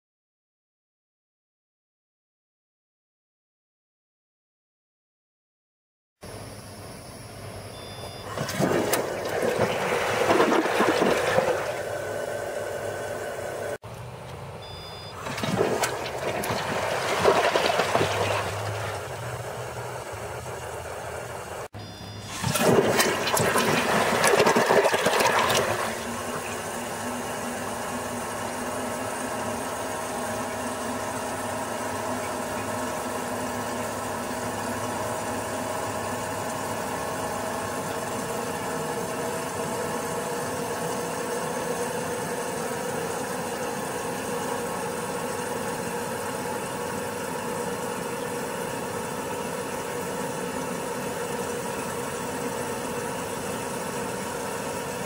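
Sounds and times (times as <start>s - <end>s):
toilet tank refilling with whine: 7.7s - 13.8s, 14.9s - 20.8s, 22.1s - 55.0s
toilet flushing: 7.8s - 13.8s, 15.1s - 20.8s, 22.2s - 29.9s.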